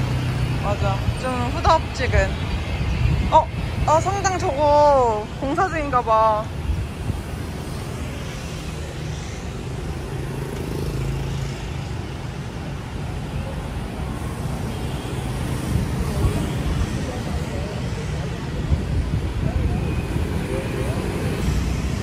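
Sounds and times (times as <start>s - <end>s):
street traffic rumble: 0.0s - 22.0s.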